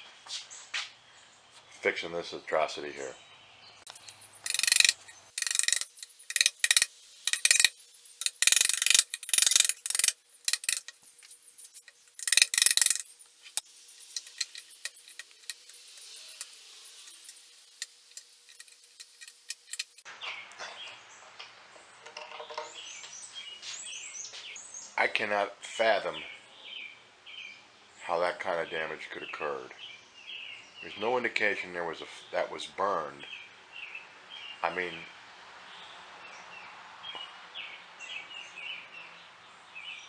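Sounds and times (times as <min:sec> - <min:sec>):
birds chirping faintly: 0:00.0 - 0:40.0
metal tool scraping wood: 0:03.9 - 0:20.0.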